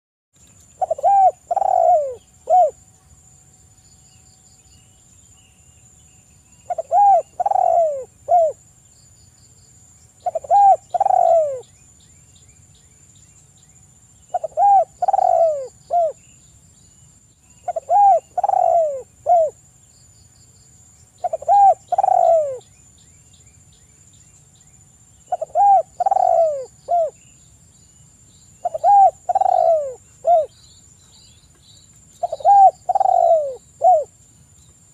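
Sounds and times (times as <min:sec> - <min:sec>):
dove cooing: 0:00.8 - 0:02.8, 0:06.7 - 0:08.6, 0:10.2 - 0:11.6, 0:14.3 - 0:16.2, 0:17.6 - 0:19.6, 0:21.2 - 0:22.7, 0:25.3 - 0:27.2, 0:28.6 - 0:30.5, 0:32.2 - 0:34.1.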